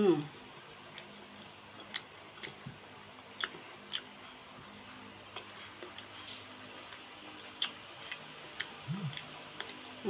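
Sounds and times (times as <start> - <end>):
faint low hum: 0.0 - 10.0
crunchy chewing of fruit: 0.2 - 10.0.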